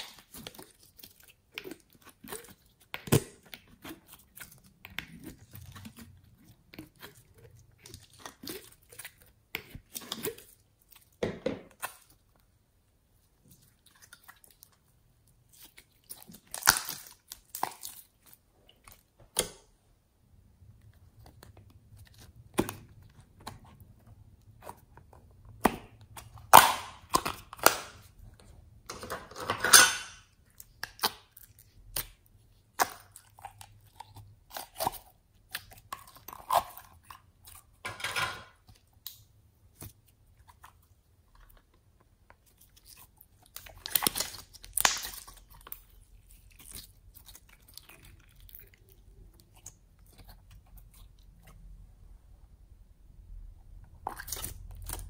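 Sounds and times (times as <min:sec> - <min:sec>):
slime sticky pops and crackles: 0:43.5 - 0:45.4.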